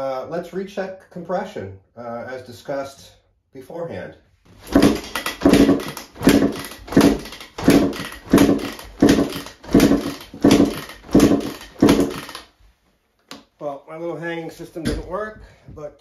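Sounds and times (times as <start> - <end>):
two-stroke engine turning over: 4.7 - 12.5.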